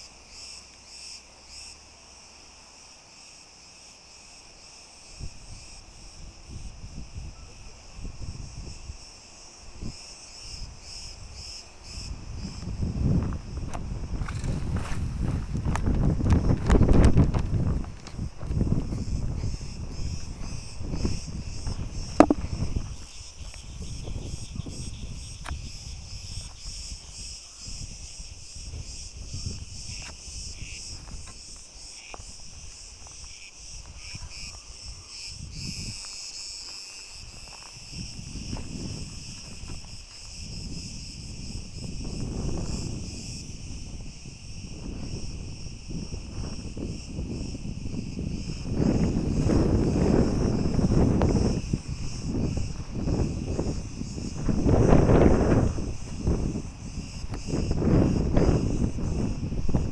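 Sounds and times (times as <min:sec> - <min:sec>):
insects chirring: 0:00.0 - 0:59.9
footsteps through dry grass: 0:13.2 - 0:19.4.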